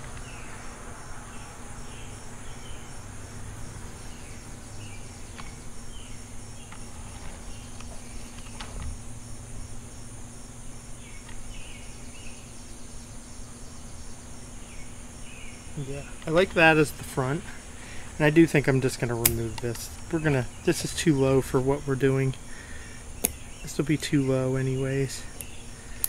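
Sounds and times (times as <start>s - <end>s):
insects trilling: 0.0s - 26.0s
sharp clicks: 19.2s - 20.2s, 23.2s - 23.5s.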